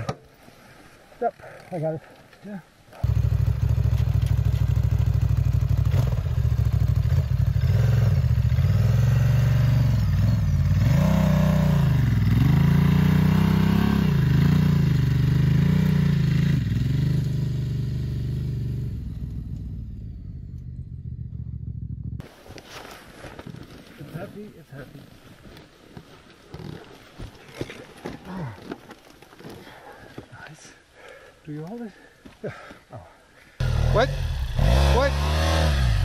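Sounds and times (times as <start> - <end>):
motorcycle engine revving: 3.0 - 22.2, 33.6 - 36.0.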